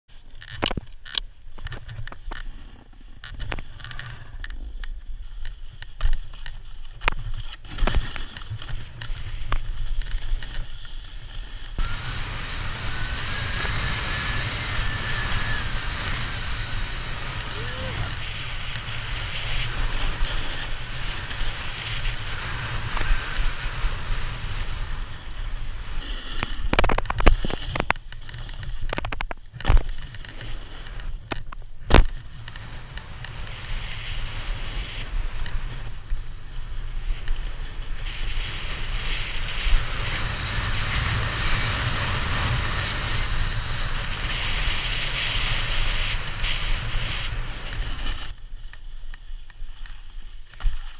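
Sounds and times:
snowboard scraping over snow: 0:01.3 - 0:50.9
wind on microphone: 0:11.8 - 0:48.4.

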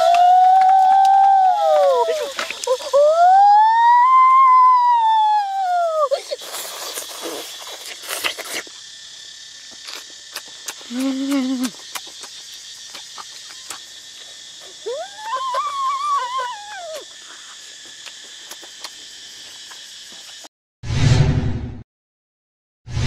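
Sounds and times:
buzz of forest insects: 0:00.0 - 0:20.5
mouth clicks while eating: 0:06.4 - 0:08.8, 0:09.7 - 0:14.8, 0:16.9 - 0:20.5.

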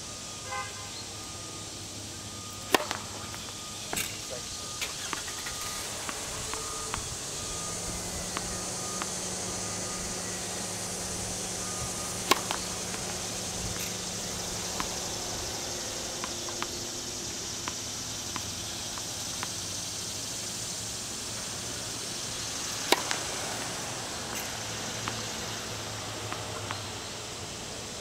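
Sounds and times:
steady high hiss: 0:00.0 - 0:28.0
ball bouncing on hard court: 0:02.6 - 0:04.1, 0:05.9 - 0:09.5, 0:12.1 - 0:15.2
racket striking tennis ball: 0:02.6 - 0:17.0, 0:22.8 - 0:25.6.

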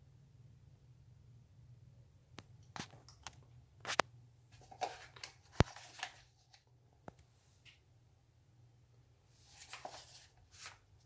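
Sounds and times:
faint low hum: 0:00.0 - 0:11.0
rustling: 0:03.8 - 0:07.7, 0:09.3 - 0:11.0.

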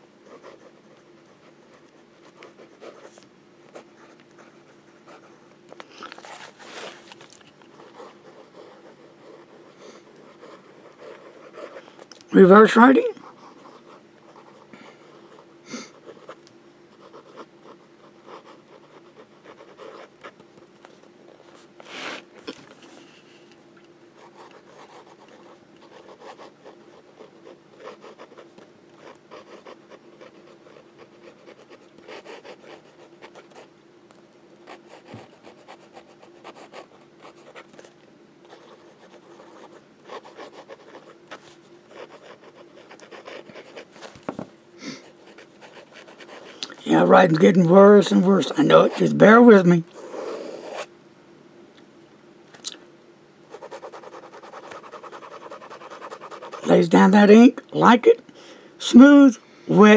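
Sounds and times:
pen nib scratching on paper: 0:07.8 - 0:12.1, 0:13.1 - 0:20.4, 0:24.2 - 0:33.7, 0:34.6 - 0:37.9, 0:38.5 - 0:44.1, 0:45.1 - 0:50.9, 0:53.5 - 0:56.7.

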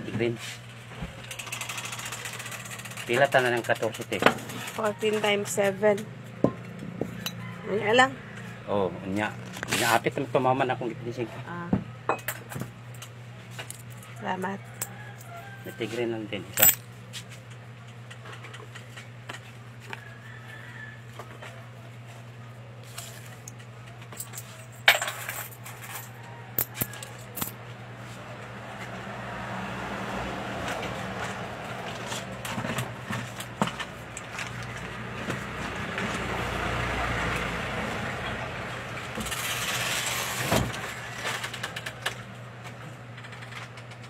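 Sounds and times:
goods clinking and rattling: 0:16.6 - 0:16.9, 0:22.9 - 0:27.6.

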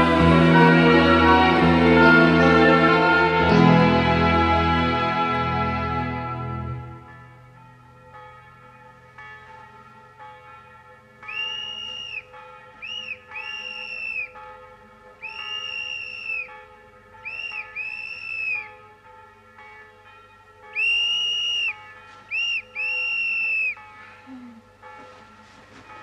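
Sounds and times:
shrill whistle blasts: 0:11.3 - 0:14.4, 0:15.2 - 0:16.6, 0:17.2 - 0:18.7, 0:20.8 - 0:23.8.

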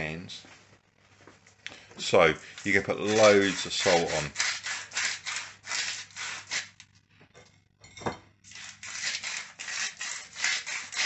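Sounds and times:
salt grinder rasping: 0:02.4 - 0:06.8, 0:08.5 - 0:11.0.

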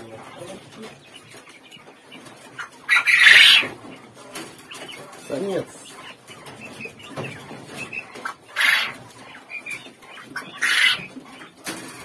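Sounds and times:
young quails peeping: 0:00.0 - 0:12.0
wings flapping and rustling: 0:06.3 - 0:12.0.

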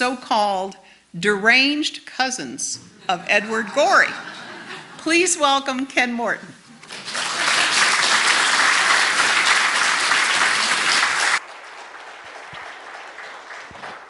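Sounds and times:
audience applauding: 0:06.8 - 0:14.0.

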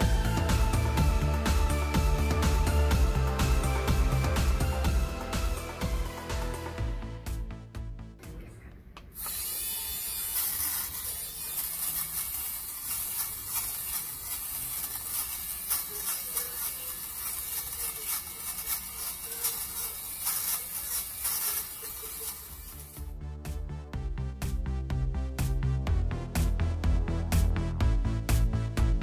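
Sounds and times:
lint remover whirring: 0:09.1 - 0:23.0
blade snipping fabric pills: 0:10.3 - 0:23.0.

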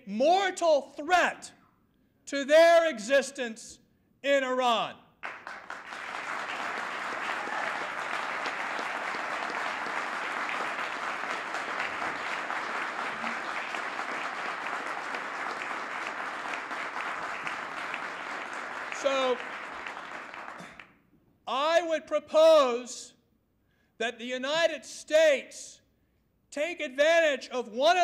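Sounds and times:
audience applauding: 0:05.2 - 0:20.9.

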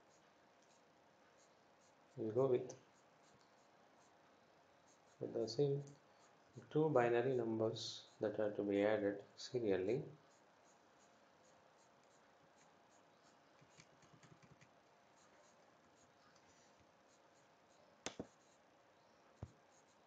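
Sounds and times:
computer mouse clicks: 0:13.5 - 0:15.6, 0:18.0 - 0:18.6.

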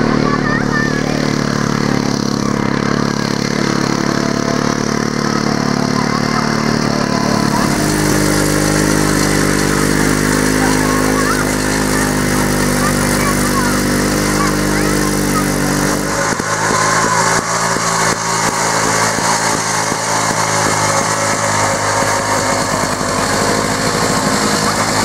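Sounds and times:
walking tractor engine running: 0:00.0 - 0:25.0.

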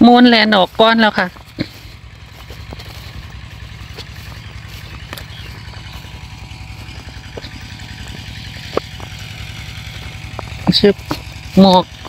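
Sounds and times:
small engine chugging: 0:00.0 - 0:12.0.

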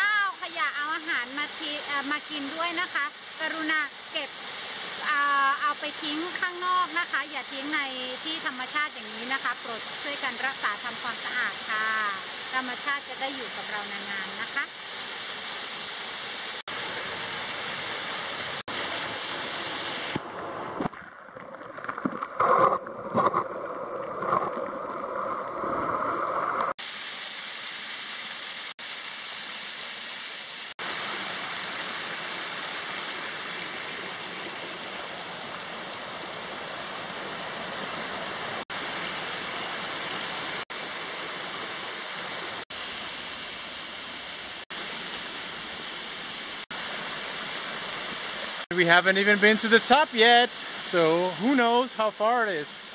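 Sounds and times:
waterfall rushing over rocks: 0:26.4 - 0:52.9.

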